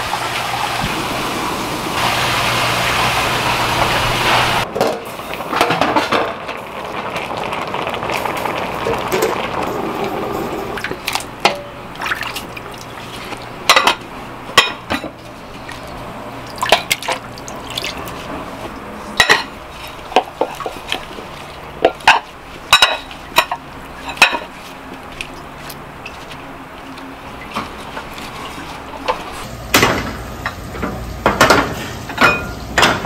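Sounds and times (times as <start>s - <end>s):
pots and dishes clinking: 4.8s - 6.6s, 10.4s - 12.2s, 13.3s - 15.2s, 19.2s - 21.1s, 21.7s - 24.6s, 27.4s - 33.0s
liquid being poured: 15.5s - 18.3s.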